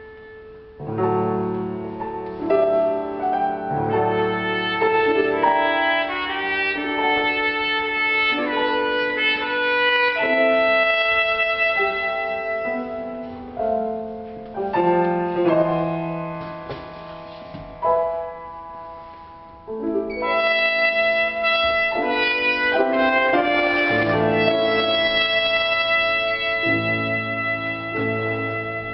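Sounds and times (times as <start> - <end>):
trumpet: 0.0 - 1.4, 2.8 - 13.6, 20.1 - 28.9
piano chords: 0.0 - 28.9.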